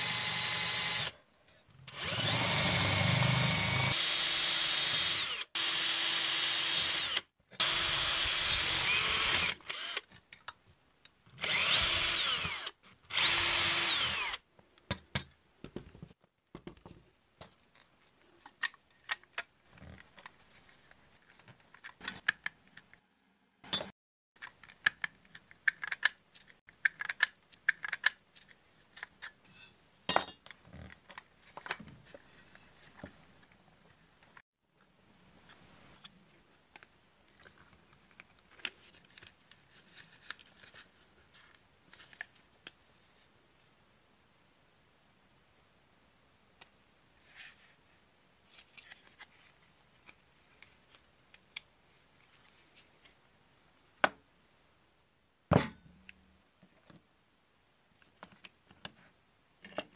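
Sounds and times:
cordless drill drilling rivets: 0:01.9 - 0:10.1, 0:11.4 - 0:14.4.

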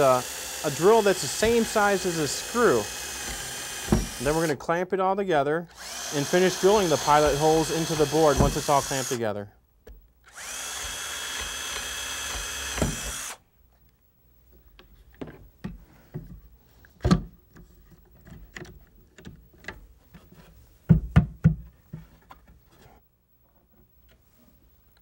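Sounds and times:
power drill whining: 0:00.0 - 0:04.5, 0:05.7 - 0:09.2, 0:10.3 - 0:13.4.

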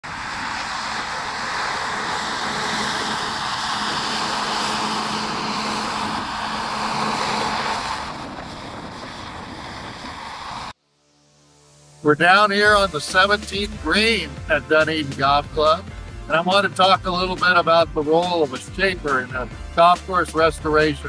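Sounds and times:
bulldozer engine and tracks: 0:00.0 - 0:10.8.

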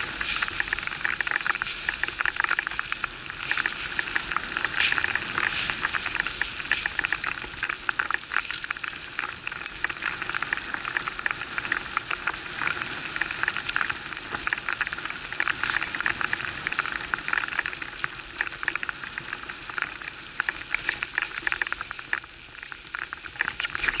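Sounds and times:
skis sliding through snow: 0:00.0 - 0:02.0, 0:02.8 - 0:07.5.

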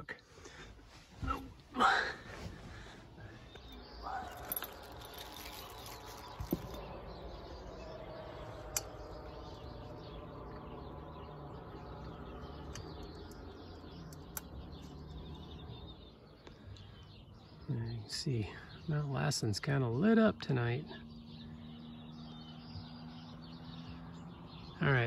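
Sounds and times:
faint birds chirping: 0:00.0 - 0:25.0.

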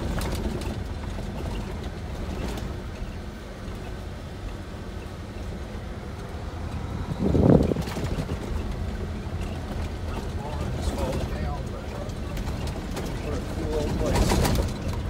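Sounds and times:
truck rumbling over gravel: 0:00.0 - 0:05.0, 0:06.1 - 0:15.0.

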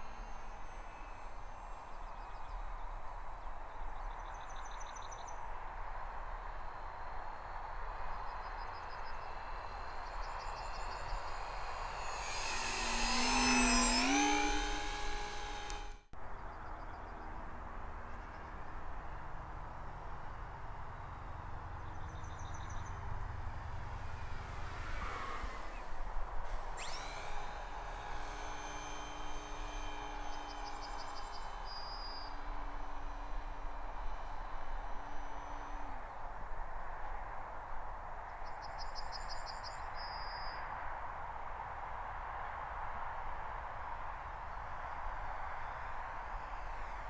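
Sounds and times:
model plane motor whining: 0:00.0 - 0:16.1, 0:19.5 - 0:41.4, 0:43.0 - 0:47.0
short fast high trill: 0:09.0 - 0:16.1, 0:23.8 - 0:36.2.

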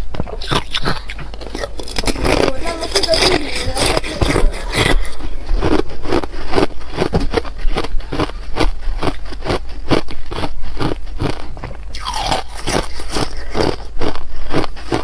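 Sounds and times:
ice being chewed: 0:00.0 - 0:15.0.

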